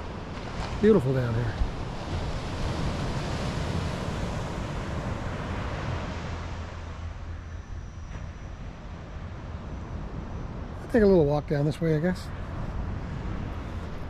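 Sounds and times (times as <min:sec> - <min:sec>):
ocean surf washing onto beach: 0:00.0 - 0:07.4
wind rumbling on microphone: 0:00.0 - 0:14.0.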